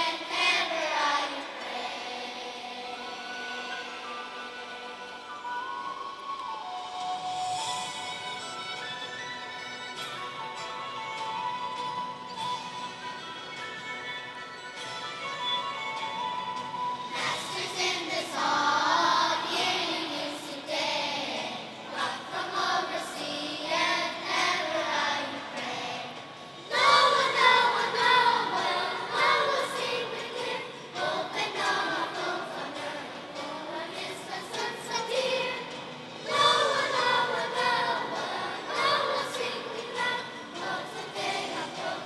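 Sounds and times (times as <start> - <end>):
children's choir singing: 0.0 - 5.3, 17.1 - 42.0.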